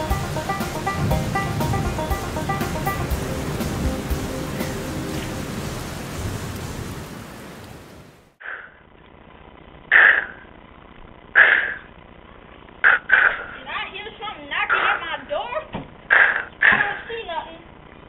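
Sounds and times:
background music: 0:00.0 - 0:06.2.

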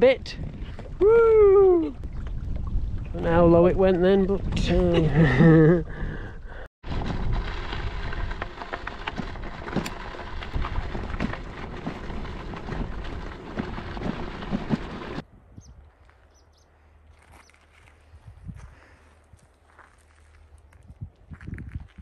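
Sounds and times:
wind buffeting microphone: 0:00.0 - 0:08.5, 0:09.2 - 0:16.1, 0:18.0 - 0:19.5, 0:20.7 - 0:22.0
tyres crunching over gravel: 0:06.8 - 0:15.2, 0:17.1 - 0:22.0.

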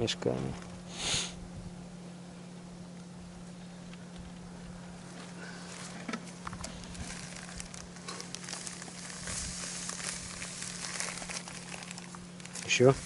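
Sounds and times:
plastic bags rustling: 0:05.6 - 0:13.0.

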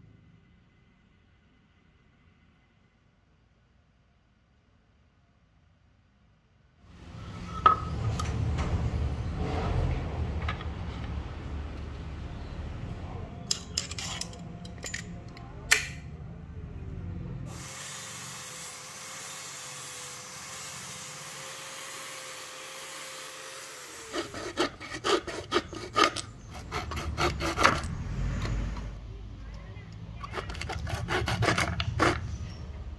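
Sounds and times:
power sander on wood: 0:17.6 - 0:25.7
hand saw cutting wood: 0:18.4 - 0:28.9, 0:30.2 - 0:32.6.

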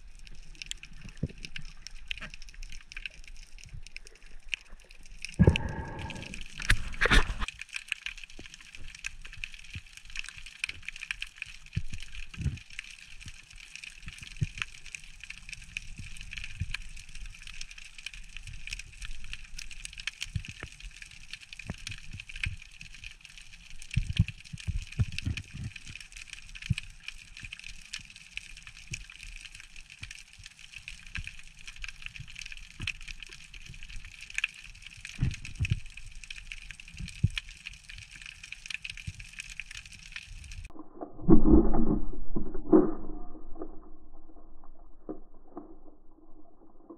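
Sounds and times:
underwater crackle of clicks: 0:00.0 - 0:46.9
underwater hiss: 0:05.3 - 0:07.5.

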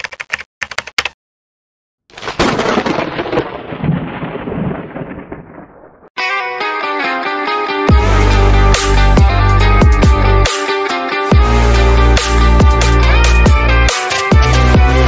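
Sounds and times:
thunder-clap sound effect: 0:02.4 - 0:06.1
electronic music: 0:07.0 - 0:15.0.

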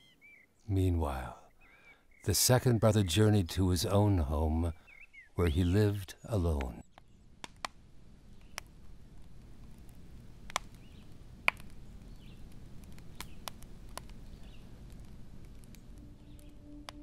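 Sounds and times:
wood fire crackling: 0:03.7 - 0:17.0
sharp pops: 0:06.6 - 0:07.8, 0:08.4 - 0:17.0
low steady rumble: 0:07.8 - 0:17.0.

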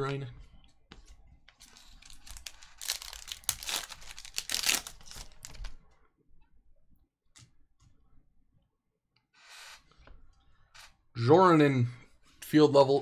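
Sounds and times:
foil wrapper crinkling and tearing: 0:01.6 - 0:05.8.

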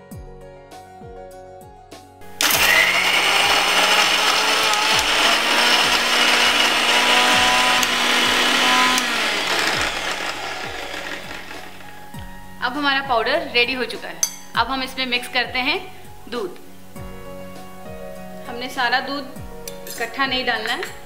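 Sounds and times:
mixer grinder motor running: 0:02.2 - 0:12.4.

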